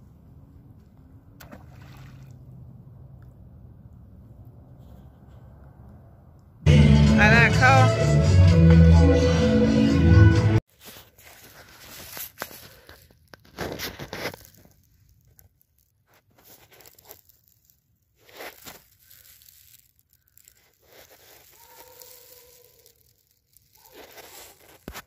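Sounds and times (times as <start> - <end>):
dry leaves rustling underfoot: 10.7 - 25.0.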